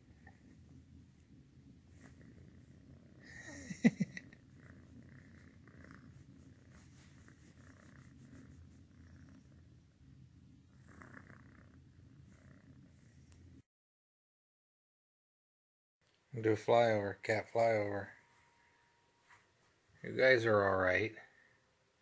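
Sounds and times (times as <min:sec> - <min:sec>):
kitten purring: 0:00.0 - 0:13.6.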